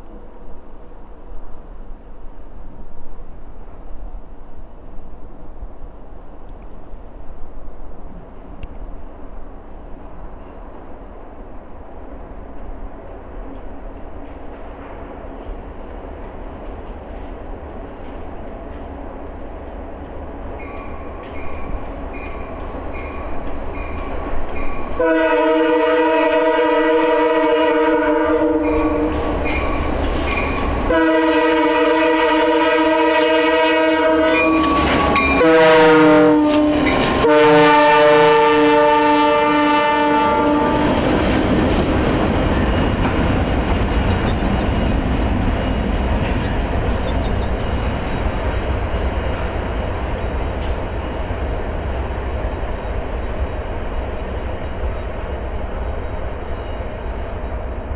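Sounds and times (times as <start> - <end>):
crossing bell dinging: 20.6 - 25.0, 28.6 - 30.9, 34.2 - 37.3
locomotive air horn blasts: 25.0 - 29.3, 30.9 - 41.0.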